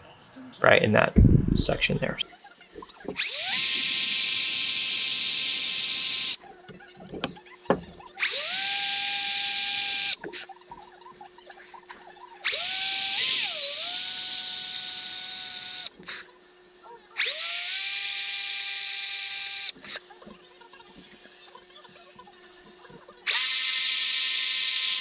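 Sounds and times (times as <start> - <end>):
power drill boring into wood: 3.2 - 6.4, 8.2 - 10.2, 12.4 - 15.9, 17.2 - 19.8, 23.3 - 25.0.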